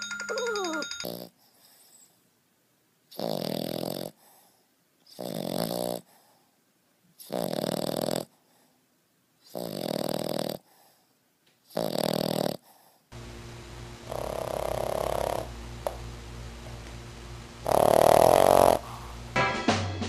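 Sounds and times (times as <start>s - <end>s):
dog snoring loudly: 3.1s - 4.2s, 5.1s - 6.2s, 7.2s - 8.3s, 9.5s - 10.8s, 11.7s - 12.8s, 14.0s - 15.5s, 17.6s - 19.2s.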